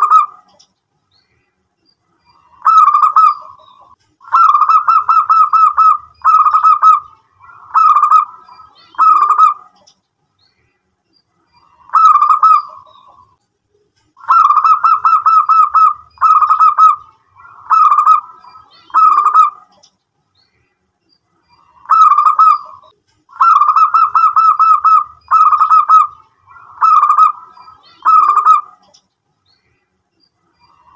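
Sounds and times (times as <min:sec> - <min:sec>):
dove cooing: 0:00.0 - 0:00.6, 0:02.4 - 0:09.9, 0:11.6 - 0:13.3, 0:14.2 - 0:19.8, 0:21.6 - 0:29.0.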